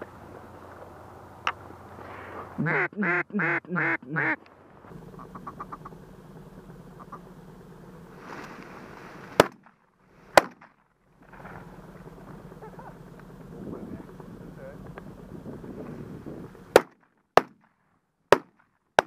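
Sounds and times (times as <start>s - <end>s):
duck call quacks: 2.6s - 4.4s, 5.2s - 5.9s, 7.0s - 7.2s
shotgun shots: 9.3s - 10.8s, 16.7s - 17.7s, 18.3s - 19.0s.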